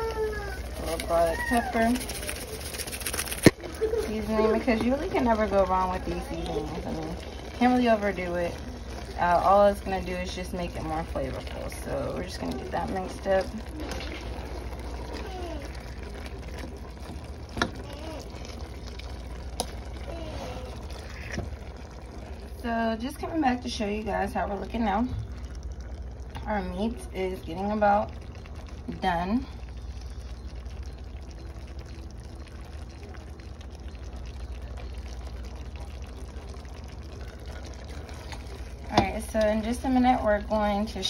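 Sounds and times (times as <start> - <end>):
meat sizzling in fat: 0.0 - 10.3, 11.2 - 22.4
steady low hum: 0.0 - 41.0.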